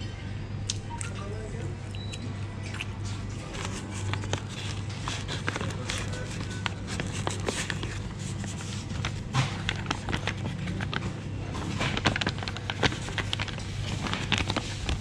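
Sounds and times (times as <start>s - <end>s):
low background hum: 0.0s - 15.0s
paper bag rustling and crinkling: 3.0s - 15.0s.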